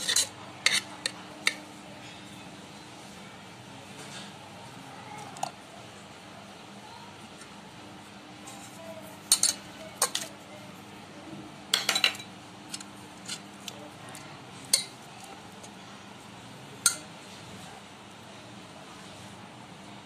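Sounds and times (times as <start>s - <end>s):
metal bowl and spoon clinking: 0.0s - 2.2s, 9.3s - 10.3s, 11.7s - 13.4s, 14.7s - 15.0s, 16.8s - 17.1s.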